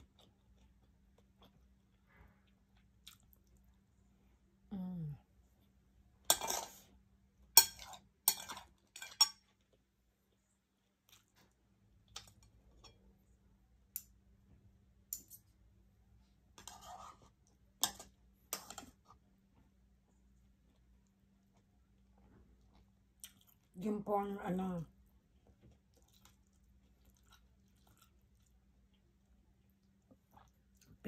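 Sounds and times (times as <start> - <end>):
person humming: 4.7 - 5.2
utensils clinking on a plate: 6.3 - 6.8, 7.6 - 9.4.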